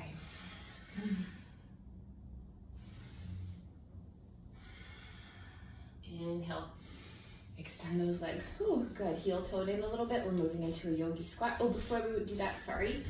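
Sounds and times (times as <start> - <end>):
woman breathing deeply: 0.0 - 6.1, 6.7 - 8.1.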